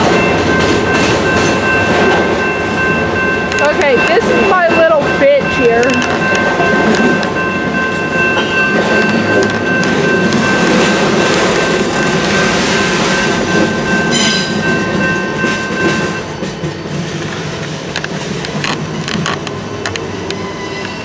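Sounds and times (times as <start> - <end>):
wheels rumbling on rail: 0.0 - 21.0
high wheel squeal: 20.0 - 21.0.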